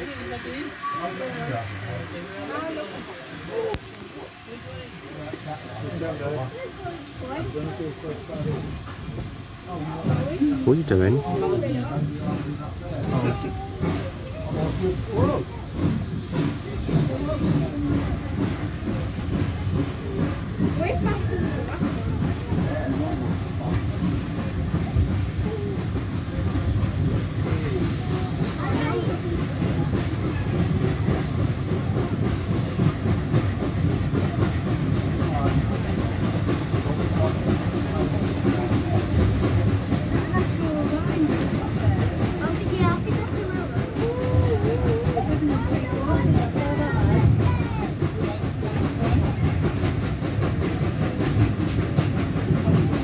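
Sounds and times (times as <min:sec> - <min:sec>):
railway carriage rumbling on track: 0:00.0 - 0:53.0.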